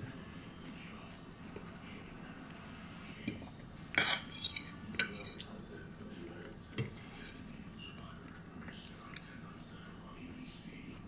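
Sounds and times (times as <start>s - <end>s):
fork clinking on a plate: 3.9s - 5.5s.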